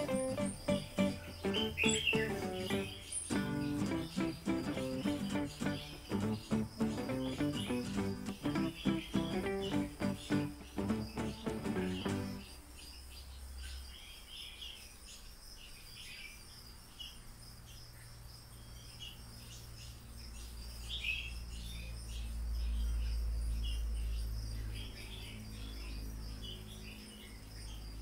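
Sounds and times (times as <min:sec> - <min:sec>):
baby marmosets chirping: 0:00.0 - 0:12.7
high insect-like whine: 0:00.0 - 0:13.1.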